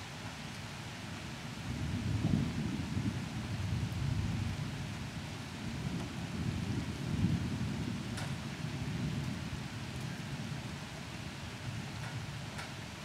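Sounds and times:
rain hiss: 0.0s - 13.0s
thunder rumbling: 1.7s - 9.7s.

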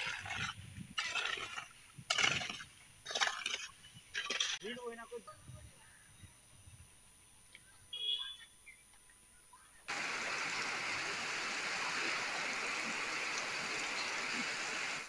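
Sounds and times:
heavy rain pouring: 9.9s - 15.0s.

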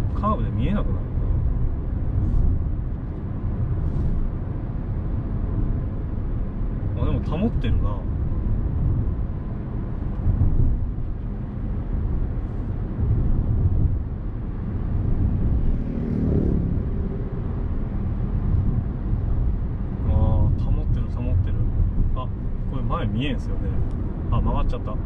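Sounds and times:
car road and engine rumble: 0.0s - 25.0s.

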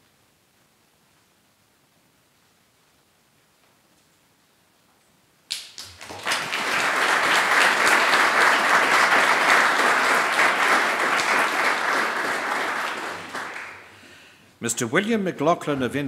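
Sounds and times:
audience applauding: 5.5s - 14.3s.

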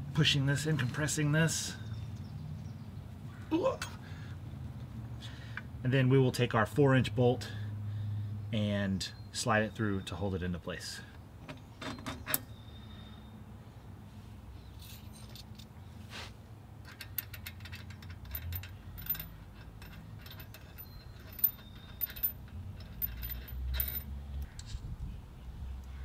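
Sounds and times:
light metal clinks: 14.7s - 15.7s, 16.8s - 24.1s.

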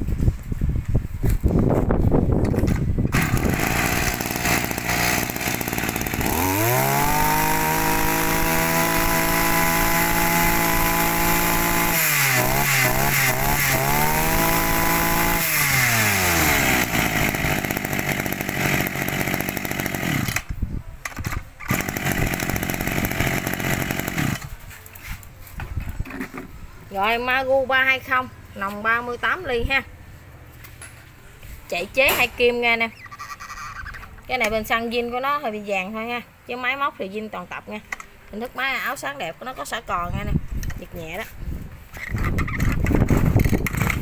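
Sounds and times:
two-stroke brush cutter engine revving: 2.6s - 20.5s, 21.6s - 24.5s, 42.2s - 44.0s.

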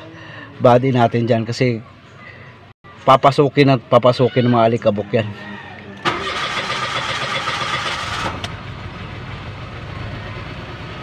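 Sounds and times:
engine whine: 6.0s - 11.0s.

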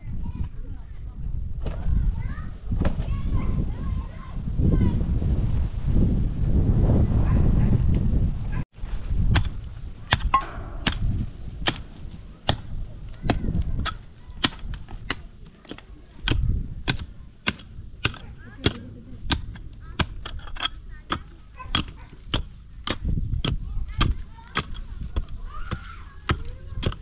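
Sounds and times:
sharp knocks: 10.1s - 23.0s.

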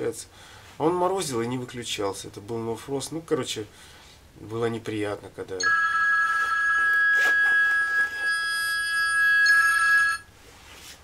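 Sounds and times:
mobile phone ringtone: 5.6s - 10.3s.

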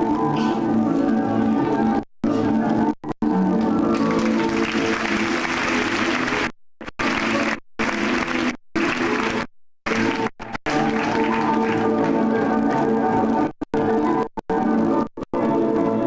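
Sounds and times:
audience applause: 3.9s - 12.4s.

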